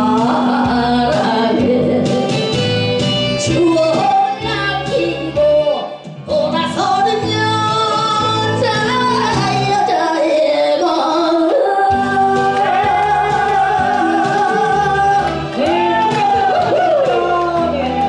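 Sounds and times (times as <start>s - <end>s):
woman singing into microphone: 0.0s - 2.7s, 3.4s - 18.0s
backing music: 0.0s - 18.0s.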